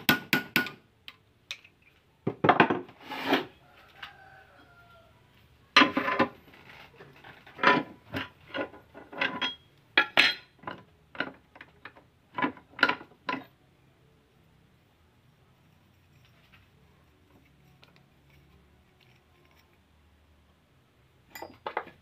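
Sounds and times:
metal tools knocking on vise: 21.3 - 22.0.

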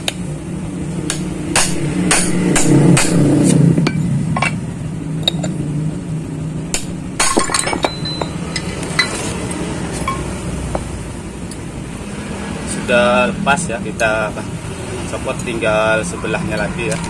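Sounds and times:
metal tools clinking on metal: 5.2 - 5.6, 7.2 - 9.2, 10.0 - 10.3.

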